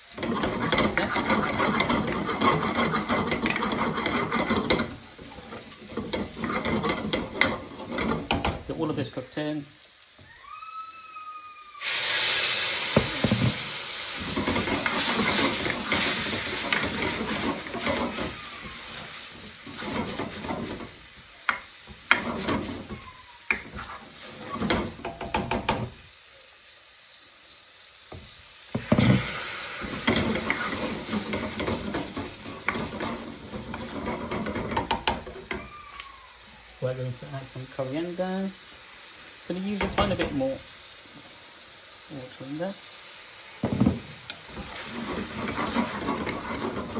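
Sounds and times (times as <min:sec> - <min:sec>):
loud sizzling hiss: 0:00.0 - 0:46.9
metal spoon scraping pan: 0:00.1 - 0:08.8, 0:14.2 - 0:25.6, 0:28.8 - 0:35.6, 0:44.6 - 0:46.9.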